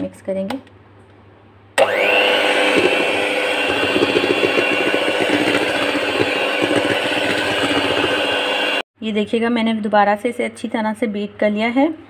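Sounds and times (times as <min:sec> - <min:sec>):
electric hand mixer whirring: 0:01.8 - 0:08.9.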